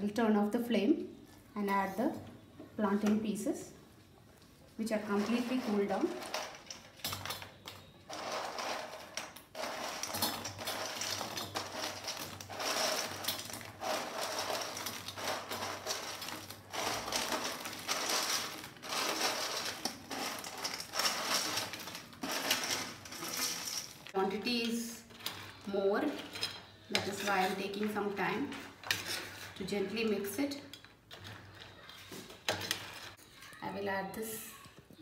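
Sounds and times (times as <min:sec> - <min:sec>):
fried pieces clattering in metal pan: 0:08.0 - 0:24.2.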